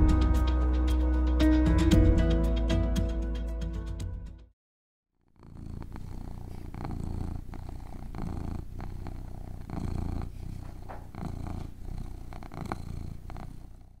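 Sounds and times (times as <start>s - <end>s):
kitten purring: 5.2s - 14.0s.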